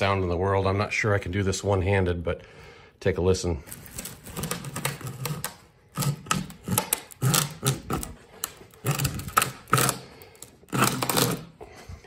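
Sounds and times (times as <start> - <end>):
mold cracking and crackling: 3.7 - 11.6.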